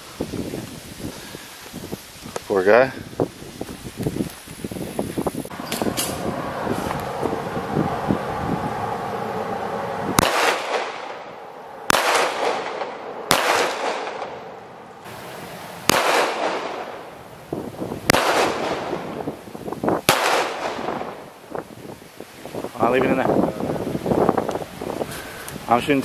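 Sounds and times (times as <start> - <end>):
handgun shots echoing: 10.2 - 11.2, 11.9 - 14.4, 15.9 - 17.0, 18.1 - 19.0, 20.1 - 21.0.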